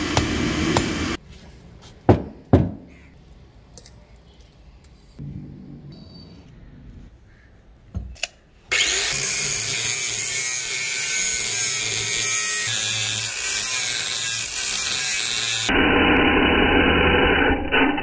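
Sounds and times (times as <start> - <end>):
angle grinder cutting steel: 8.7 - 18.0.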